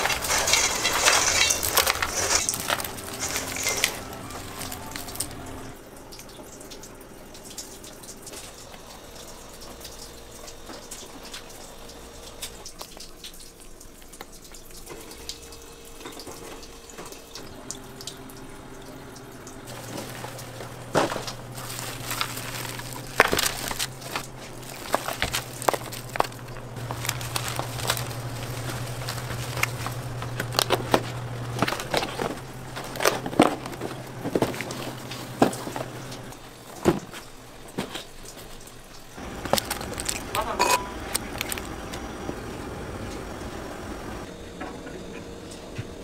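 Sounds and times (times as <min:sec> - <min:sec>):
kitchen clicks and clatter: 0:00.0 - 0:05.8, 0:19.7 - 0:42.0
steady hiss and low hum: 0:00.0 - 0:46.0.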